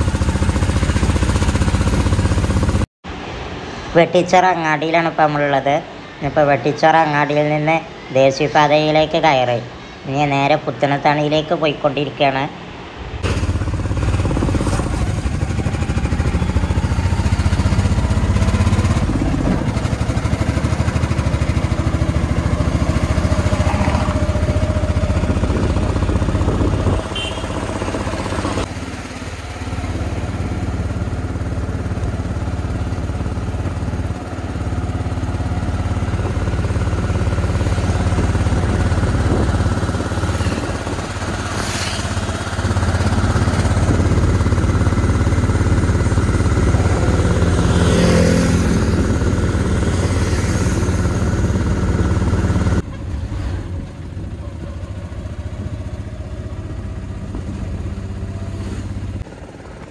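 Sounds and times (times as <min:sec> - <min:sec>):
auto-rickshaw engine running: 0:00.0 - 0:59.9
road noise: 0:00.0 - 0:59.9.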